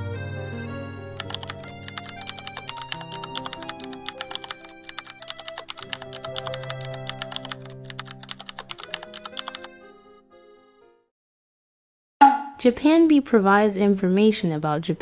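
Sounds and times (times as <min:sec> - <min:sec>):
soft background music: 0:00.0 - 0:10.0
keyboard typing clicks: 0:01.2 - 0:09.7.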